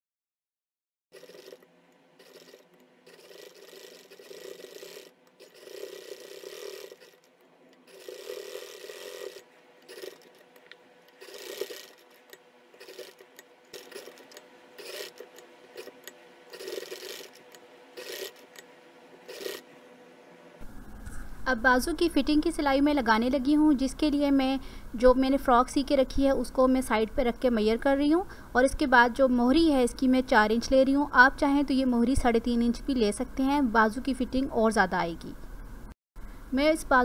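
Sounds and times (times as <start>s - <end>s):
sewing machine stitching: 1.1s - 10.6s, 11.2s - 18.6s, 19.2s - 19.6s.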